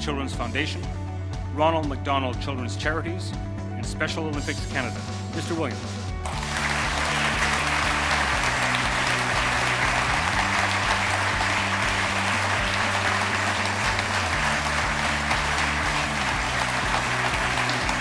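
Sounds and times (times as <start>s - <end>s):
music of sustained low chords: 0.0s - 18.0s
audience applauding: 6.2s - 18.0s.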